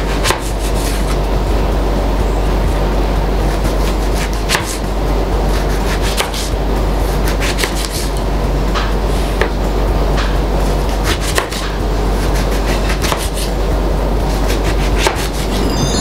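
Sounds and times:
low hum: 0:15.2 - 0:16.0.

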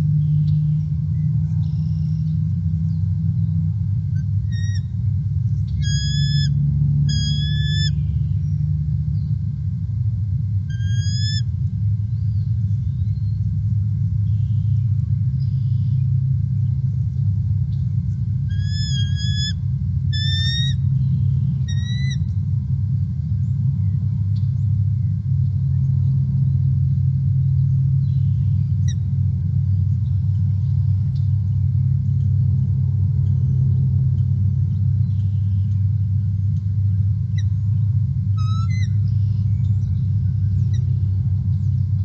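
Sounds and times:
eagle calls: 0:00.0 - 0:08.8, 0:10.5 - 0:13.5, 0:14.2 - 0:24.0, 0:33.2 - 0:42.0
low rumble: 0:00.0 - 0:42.0.

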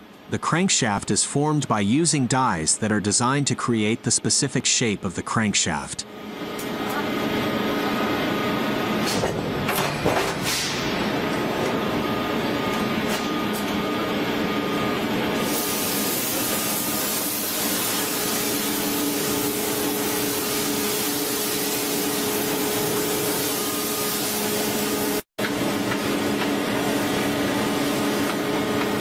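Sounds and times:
machine hum: 0:05.9 - 0:29.0.

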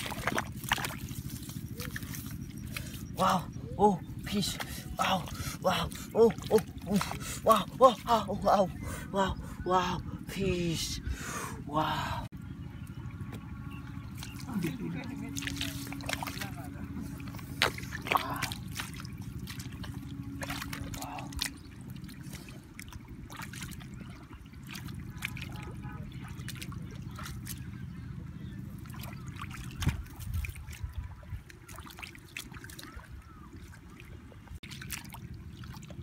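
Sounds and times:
hands splashing in muddy water: 0:00.0 - 0:03.5, 0:14.1 - 0:27.6, 0:28.8 - 0:36.0.

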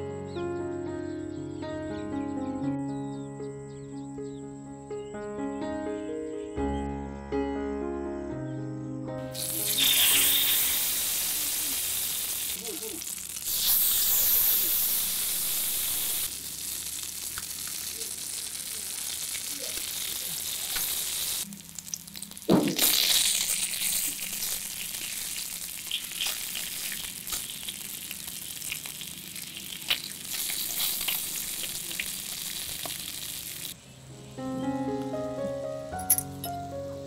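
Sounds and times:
fish frying in oil: 0:09.3 - 0:33.8
sharp knock in pan: 0:22.5 - 0:22.9.

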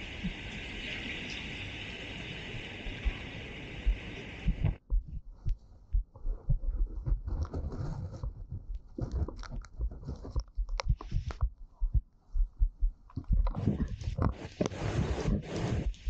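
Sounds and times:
rain hiss: 0:00.0 - 0:04.8, 0:14.0 - 0:16.0
wind buffeting microphone: 0:00.0 - 0:16.0
light crackles: 0:06.9 - 0:12.0, 0:13.0 - 0:16.0.

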